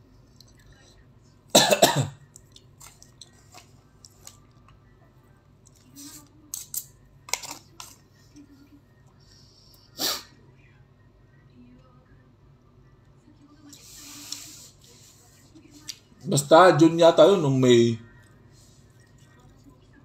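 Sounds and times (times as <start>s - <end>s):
person chewing: 2.3s - 4.6s.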